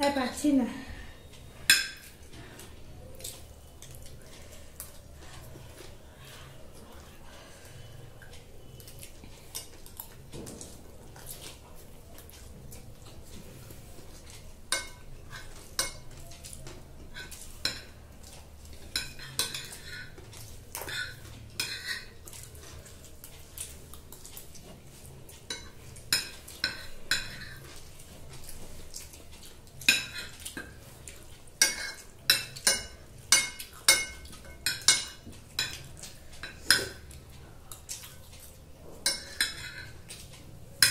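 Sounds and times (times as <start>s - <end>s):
cutlery clinking on glass plates: 1.6s - 2.3s, 14.2s - 22.9s, 25.3s - 28.4s, 29.0s - 30.9s, 31.5s - 38.2s, 39.0s - 40.9s.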